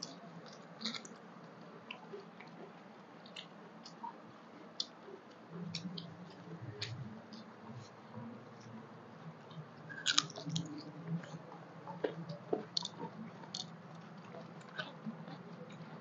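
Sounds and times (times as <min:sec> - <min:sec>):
chewing: 0:00.0 - 0:04.2, 0:09.5 - 0:16.0
low steady hum: 0:00.0 - 0:16.0.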